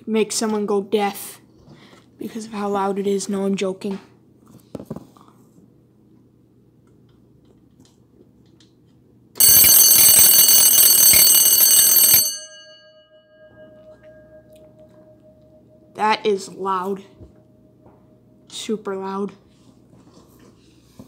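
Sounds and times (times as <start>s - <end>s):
alarm clock bells ringing: 9.4s - 14.5s.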